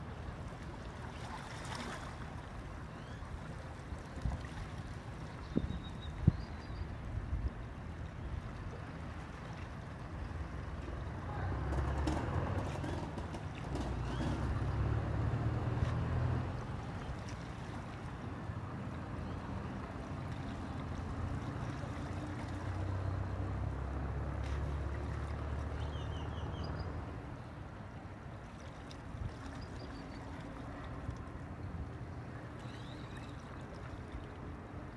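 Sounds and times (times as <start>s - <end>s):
oil tanker engine rumble: 7.4s - 34.9s.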